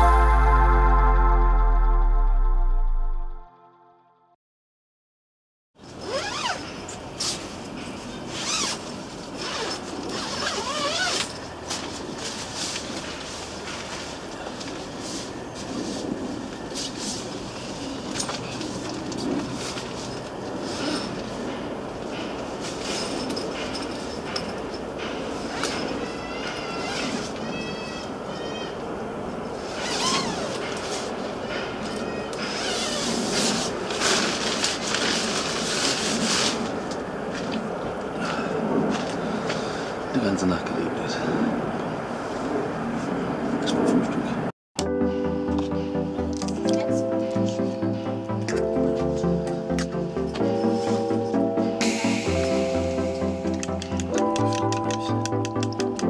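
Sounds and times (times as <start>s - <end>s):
tent fabric rustling: 5.9s - 6.6s, 8.2s - 16.0s, 29.6s - 31.3s, 32.4s - 37.5s
zipper rasping open: 6.0s - 6.7s, 8.3s - 8.8s, 9.4s - 11.4s, 29.7s - 30.8s, 32.4s - 34.3s.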